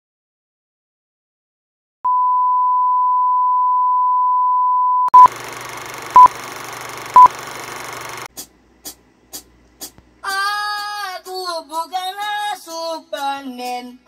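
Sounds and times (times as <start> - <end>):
short beeps: 2.1 - 5.3, 6.2 - 6.4, 7.2 - 7.4.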